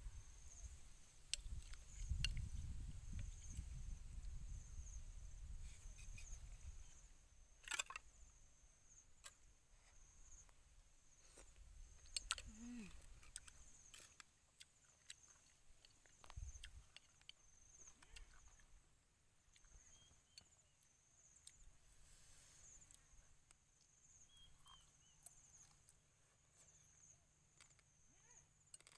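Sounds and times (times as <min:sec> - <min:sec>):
faint high hiss: 0:21.7 - 0:23.4.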